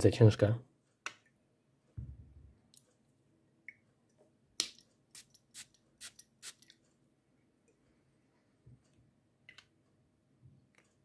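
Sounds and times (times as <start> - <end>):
perfume atomizer spraying: 5.2 - 6.7.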